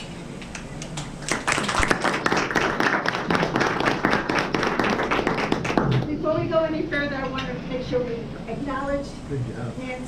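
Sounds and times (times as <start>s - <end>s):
audience applauding: 1.0s - 6.1s.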